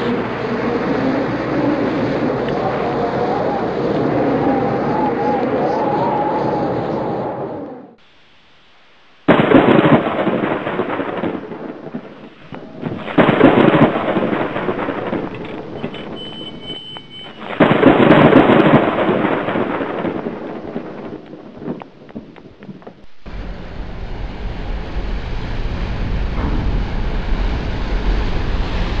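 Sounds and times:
thunder claps: 0:00.0 - 0:08.0, 0:09.3 - 0:29.0
low hiss: 0:08.0 - 0:29.0.

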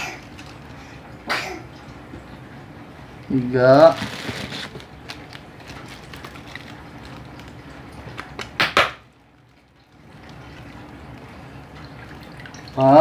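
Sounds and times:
plastic bag rustling and crinkling: 0:03.6 - 0:08.4.

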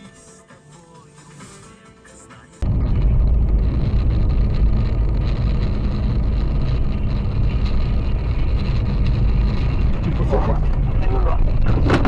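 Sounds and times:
car engine and tyre noise: 0:02.6 - 0:12.0.

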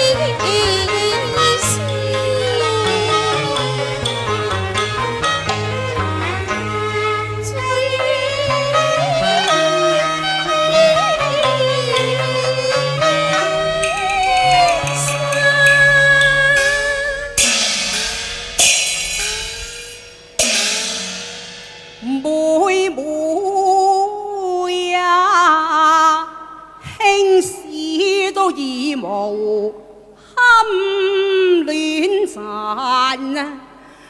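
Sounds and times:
woman singing opera: 0:00.0 - 0:04.3, 0:07.4 - 0:17.4, 0:22.0 - 0:33.8
opera accompanying instruments: 0:00.0 - 0:19.3
cymbal and gong crashes: 0:13.3 - 0:22.2.

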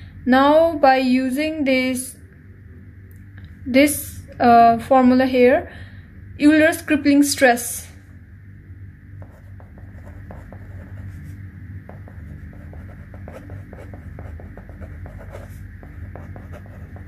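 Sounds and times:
steady low hum: 0:00.0 - 0:17.0
pen scratching on paper: 0:09.2 - 0:17.0.

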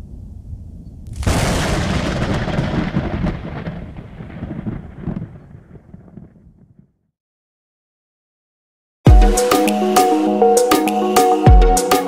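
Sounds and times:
thunderclap with rolling rumble: 0:00.0 - 0:07.0.

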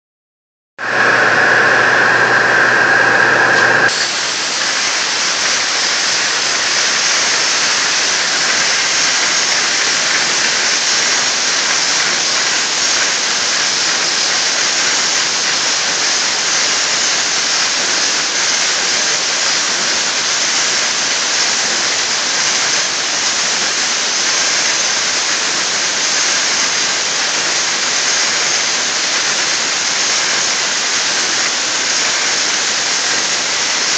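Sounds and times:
loud pitched drone: 0:00.8 - 0:23.1
water jet hissing: 0:00.8 - 0:33.9.

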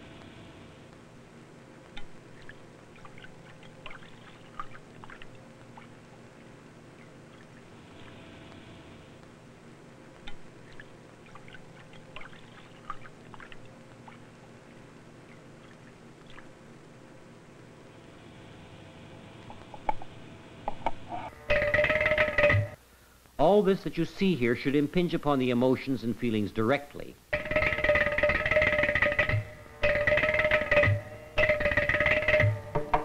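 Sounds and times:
faint steady hum: 0:00.0 - 0:33.0
water dripping and splashing: 0:02.0 - 0:06.0, 0:10.2 - 0:14.4, 0:15.3 - 0:16.6.

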